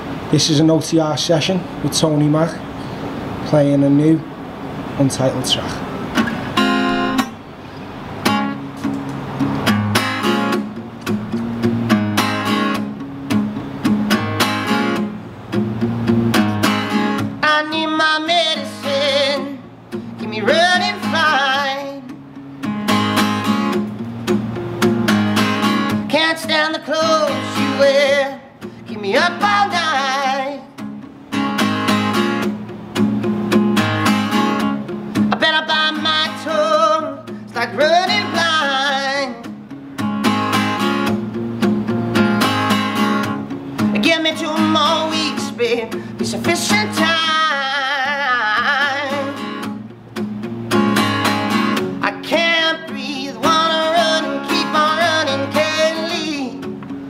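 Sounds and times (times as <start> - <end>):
acoustic guitar strumming: 0.0 - 57.0
man singing: 17.4 - 19.6, 20.2 - 22.1, 26.0 - 30.7, 35.3 - 39.5, 43.9 - 49.4, 52.0 - 56.6.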